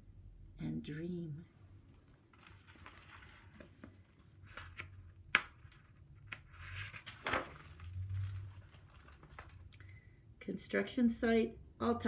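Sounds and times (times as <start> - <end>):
paper pages rustling: 2.0 - 9.8.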